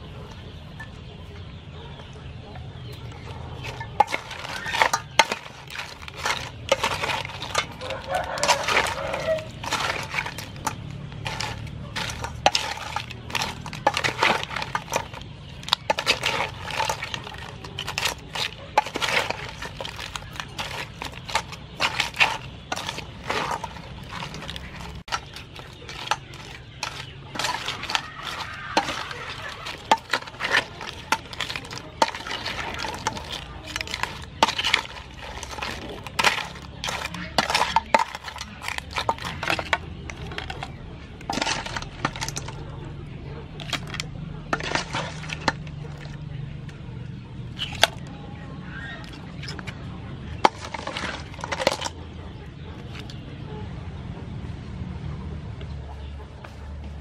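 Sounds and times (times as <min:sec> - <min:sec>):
wooden spoon stirring bowl: 0:03.0 - 0:46.7, 0:47.4 - 0:48.1, 0:49.0 - 0:53.2
crab pieces clattering in metal bowl: 0:03.0 - 0:48.2, 0:48.8 - 0:53.2.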